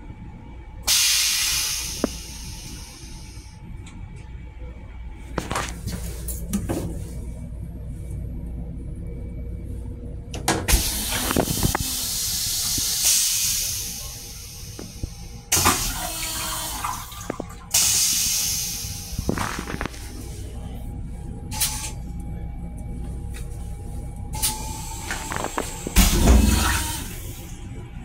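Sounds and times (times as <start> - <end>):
low rumble: 1.9 - 13.0, 18.6 - 28.0
toilet water rushing: 14.8 - 19.8, 25.0 - 27.6.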